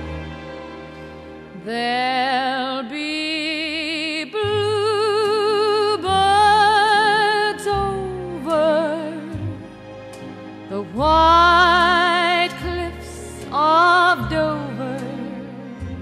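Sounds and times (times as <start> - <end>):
orchestra playing: 0.0 - 2.4, 4.7 - 16.0
woman singing with vibrato: 1.6 - 9.4.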